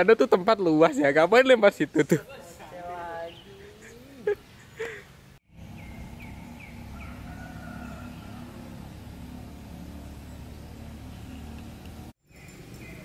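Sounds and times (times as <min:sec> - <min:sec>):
small bird chirping: 0:05.6 - 0:13.0.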